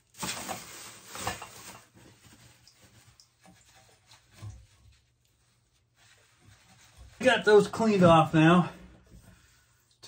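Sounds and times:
abrasive scrubbing copper pipe: 0:02.6 - 0:10.0.

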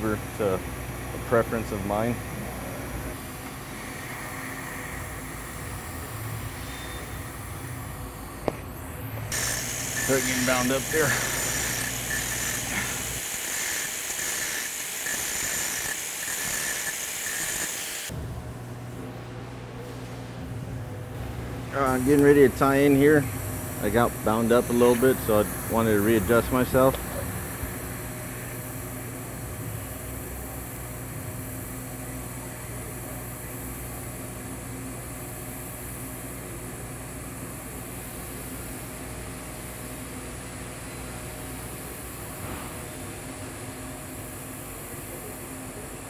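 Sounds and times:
welding arc humming and hissing: 0:00.0 - 0:46.0
angle grinder grinding steel: 0:09.3 - 0:18.1.

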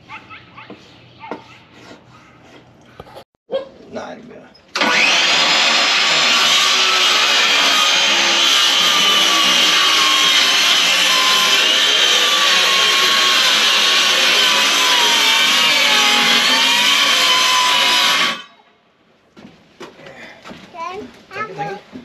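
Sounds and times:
circular saw cutting plywood: 0:04.8 - 0:18.5.

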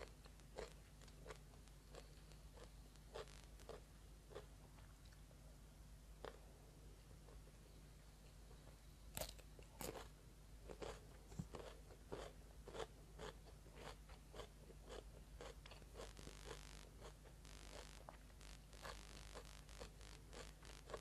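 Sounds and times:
biting into cucumber crunch: 0:00.0 - 0:04.5, 0:09.2 - 0:10.1, 0:10.7 - 0:17.9
crunchy chewing: 0:00.0 - 0:05.2, 0:08.5 - 0:21.0.

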